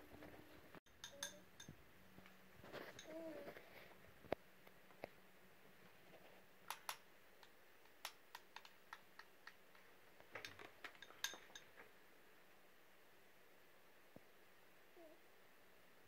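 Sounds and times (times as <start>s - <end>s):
metal spoon clinking glass bowl: 0.9s - 1.7s.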